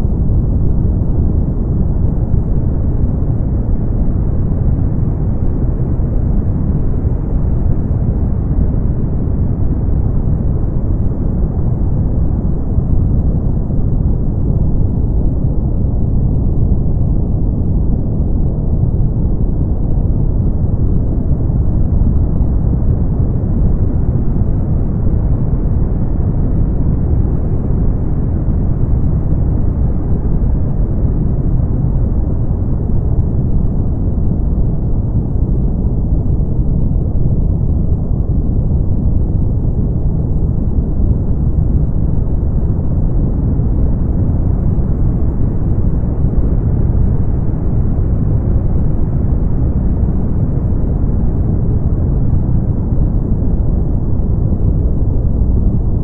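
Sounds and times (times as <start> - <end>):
brown noise: 0.0 - 56.0.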